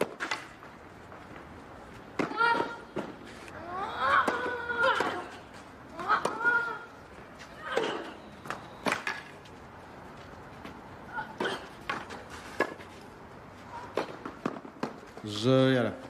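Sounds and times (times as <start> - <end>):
racket hitting tennis ball: 2.1 - 6.8, 13.8 - 15.2
tennis ball bouncing: 2.1 - 9.5, 13.9 - 15.2.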